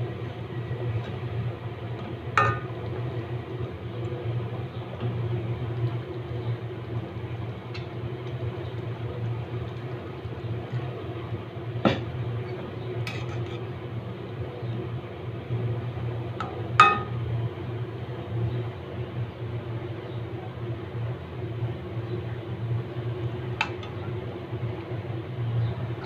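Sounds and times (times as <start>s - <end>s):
metal spatula knocking on pan: 2.4s - 2.7s, 16.4s - 17.2s.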